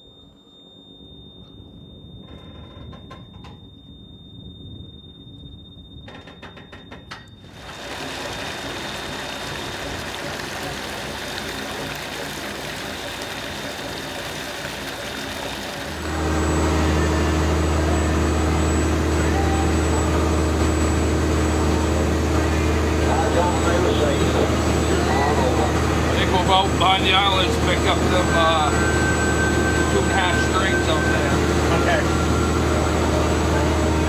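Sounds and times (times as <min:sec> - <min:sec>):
water churning along hull: 0:07.4 - 0:34.0
boat engine running: 0:07.5 - 0:34.0.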